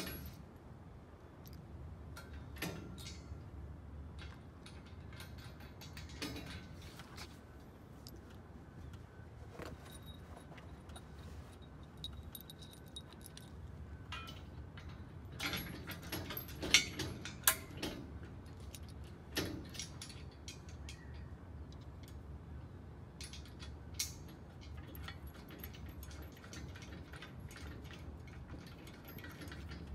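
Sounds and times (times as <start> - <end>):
bolts clinking against metal: 0.0 - 0.4, 1.4 - 22.3, 23.1 - 29.9.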